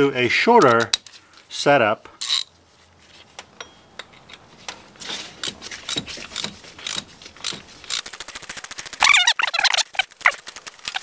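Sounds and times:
ratchet clicking: 2.2s - 2.5s, 5.4s - 9.1s.

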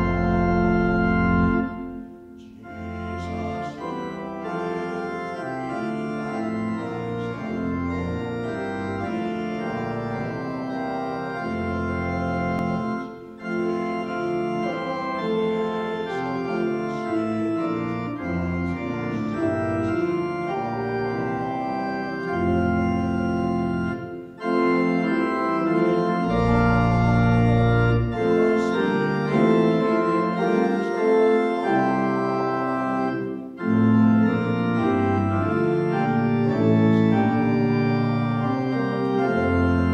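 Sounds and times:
organ playing a hymn: 0.0s - 39.9s.

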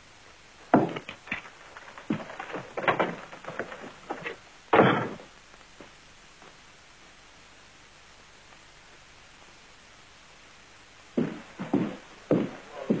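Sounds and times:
knocks and thuds: 0.7s - 5.3s.

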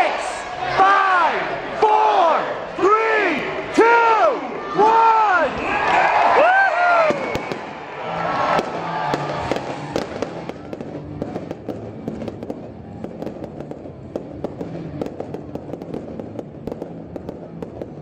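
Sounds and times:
fireworks bursting: 7.0s - 18.0s.

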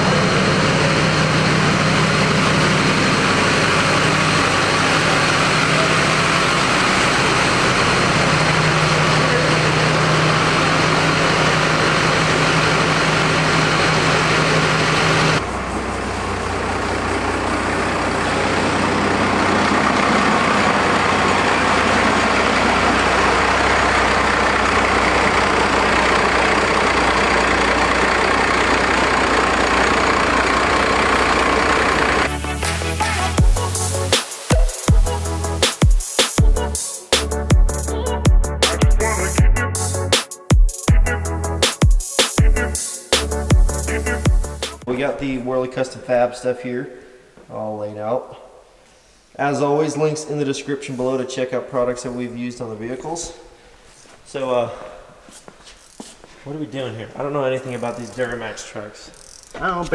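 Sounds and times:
diesel engine idling: 0.0s - 40.2s, 40.9s - 41.7s, 42.4s - 44.9s, 56.0s - 59.9s.

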